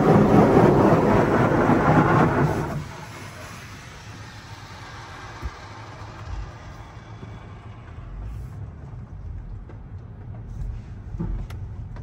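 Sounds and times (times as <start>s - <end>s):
hiss: 0.0s - 8.6s.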